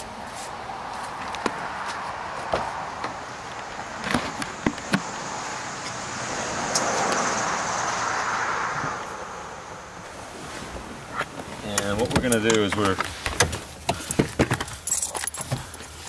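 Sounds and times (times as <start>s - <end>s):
broad rushing noise: 0.0s - 13.8s
footsteps: 0.2s - 6.0s.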